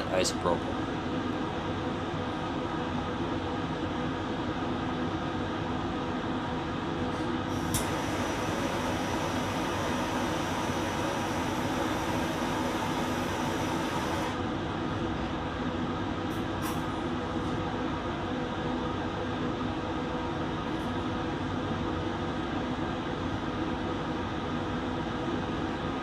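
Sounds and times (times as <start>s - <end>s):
fan running steadily: 0.0s - 26.0s
hand torch flame hissing: 7.5s - 14.3s.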